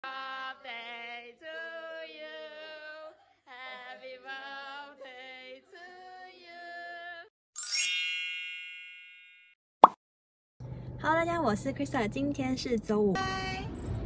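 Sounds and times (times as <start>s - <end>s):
women singing a cappella: 0.0s - 7.3s.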